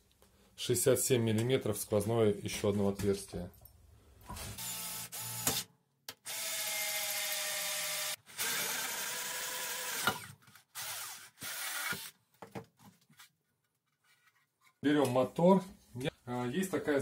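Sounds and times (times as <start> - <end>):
drill cutting through acrylic sheet: 4.4 - 12.1.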